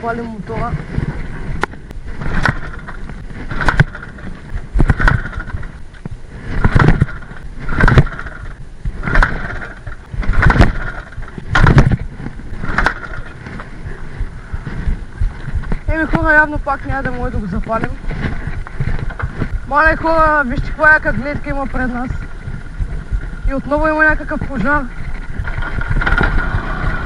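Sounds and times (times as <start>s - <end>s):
engine turning over on kick-start: 2.2s - 5.8s, 6.5s - 13.6s, 25.4s - 27.0s.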